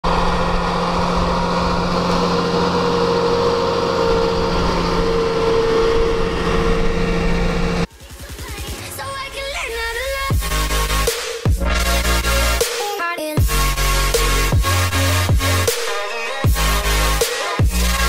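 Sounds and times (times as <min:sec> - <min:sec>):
low pulsing sound: 0:00.0 - 0:07.9
tractor diesel engine running: 0:00.0 - 0:08.8.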